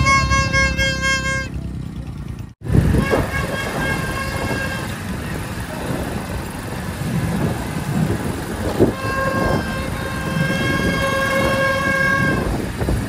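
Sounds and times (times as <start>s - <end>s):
vehicle horn blast: 0.0s - 1.8s, 2.8s - 5.1s, 8.8s - 12.8s.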